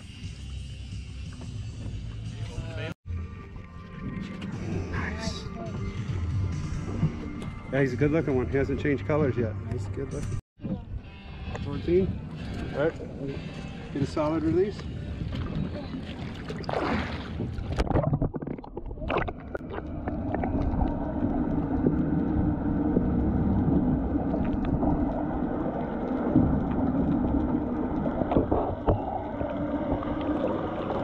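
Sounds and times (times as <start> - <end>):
muffled underwater water noise: 13.5 - 31.0
water splashing: 15.1 - 31.0.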